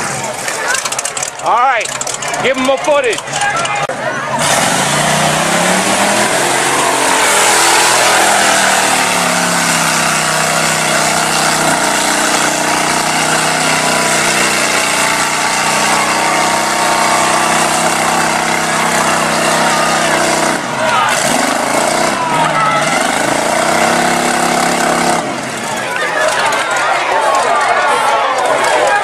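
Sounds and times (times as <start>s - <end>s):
truck engine revving hard: 3.9s - 26.6s.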